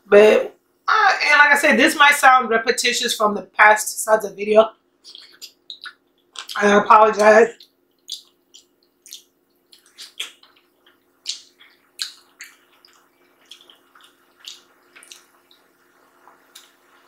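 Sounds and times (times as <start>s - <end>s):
faint steady hum: 0.0s - 17.0s
chewing and lip smacks: 5.0s - 6.6s, 7.5s - 17.0s.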